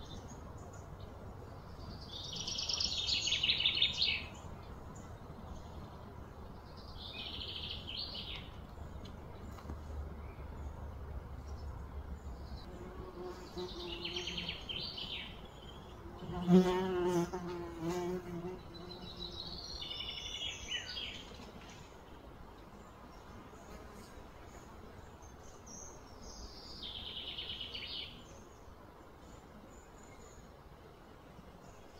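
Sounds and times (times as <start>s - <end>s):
fly buzzing: 16.0s - 19.3s.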